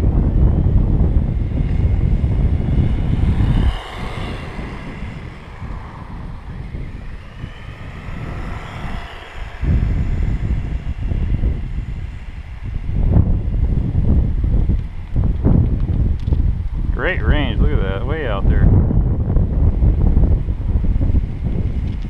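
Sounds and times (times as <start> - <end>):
toy truck electric motor whine: 0.0 - 16.5
wind buffeting microphone: 0.0 - 22.0.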